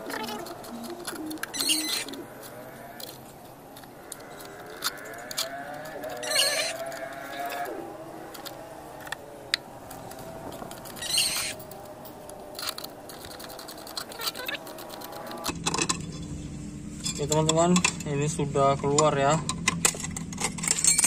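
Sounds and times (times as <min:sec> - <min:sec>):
sharp metal clicks: 0:00.1 - 0:16.0.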